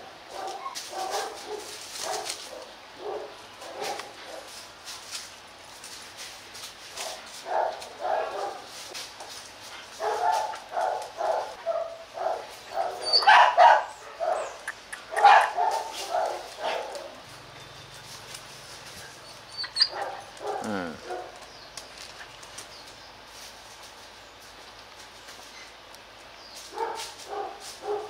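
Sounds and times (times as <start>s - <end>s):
dogs barking and yipping: 0.0s - 4.6s, 7.0s - 8.9s, 9.6s - 23.0s, 26.6s - 28.0s.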